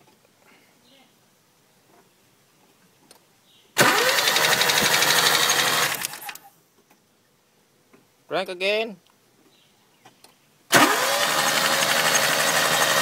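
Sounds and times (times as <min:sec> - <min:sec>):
starter motor cranking engine: 0:03.8 - 0:06.5, 0:10.7 - 0:13.0.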